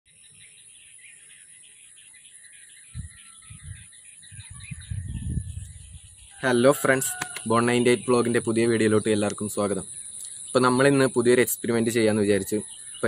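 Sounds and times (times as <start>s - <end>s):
birds chirping: 0.1s - 13.0s
wind rumbling on microphone: 2.9s - 7.5s
steady high hiss: 5.6s - 13.0s.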